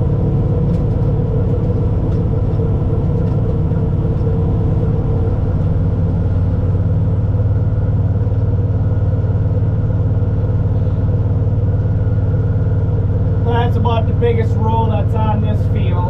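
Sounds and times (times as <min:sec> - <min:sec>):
tractor engine low hum: 0:00.0 - 0:16.0.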